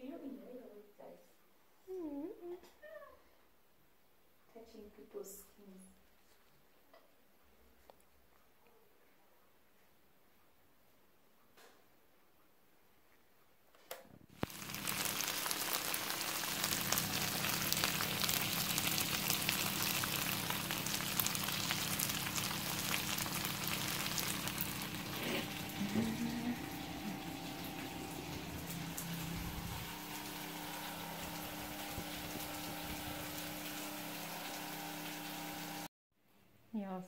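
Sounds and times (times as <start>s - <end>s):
stir-fry sizzling in a pan: 14.4s - 35.9s.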